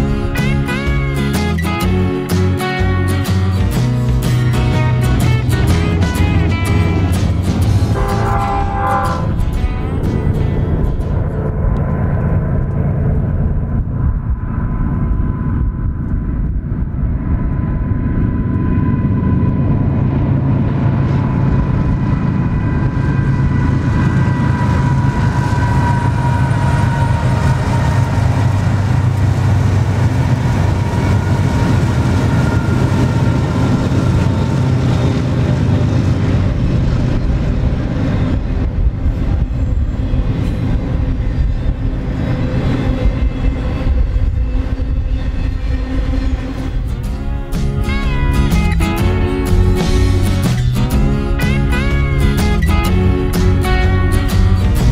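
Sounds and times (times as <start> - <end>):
locomotive engine drone and whine: 0.0 - 54.9
train wheels clattering on rails: 20.9 - 51.2.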